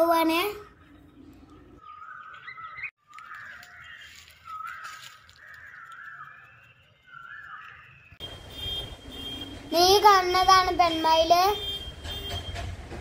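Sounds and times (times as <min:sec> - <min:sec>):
harsh bird calls: 0:00.6 - 0:09.5.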